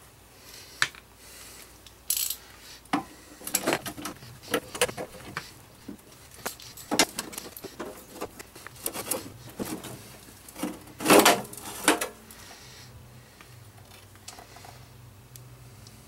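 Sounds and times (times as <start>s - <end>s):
metal scrape: 6.5s - 12.2s.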